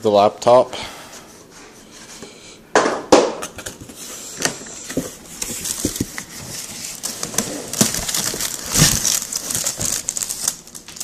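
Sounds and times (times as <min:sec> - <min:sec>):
cardboard scraping and rustling: 0:03.8 - 0:10.6.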